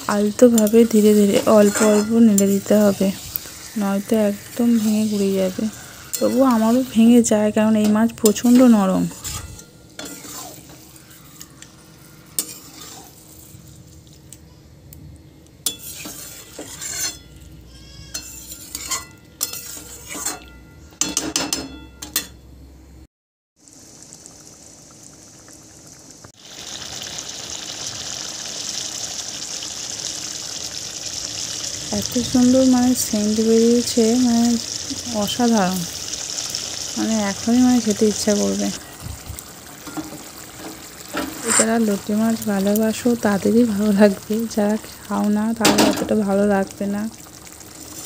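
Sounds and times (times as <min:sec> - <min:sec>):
metal spatula scraping a wok: 0:00.0 - 0:13.8, 0:15.6 - 0:22.3, 0:39.8 - 0:42.0
curry bubbling and sizzling: 0:00.0 - 0:14.4, 0:15.6 - 0:20.5, 0:23.6 - 0:48.0
low sizzle: 0:00.0 - 0:23.0, 0:23.6 - 0:48.0.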